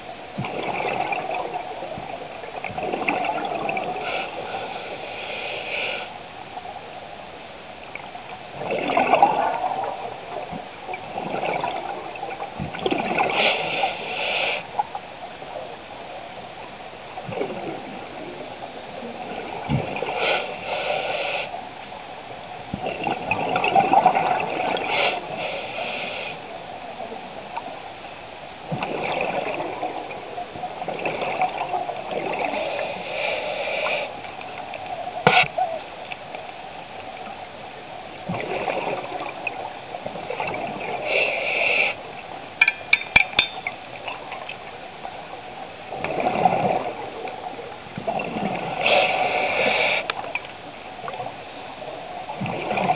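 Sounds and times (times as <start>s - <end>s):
diver exhaling bubbles: 38.3s - 39.4s.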